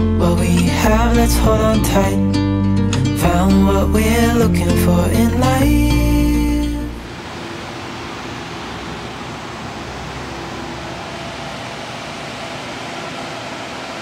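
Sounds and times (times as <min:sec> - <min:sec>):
faint hum: 0:03.2 - 0:14.0.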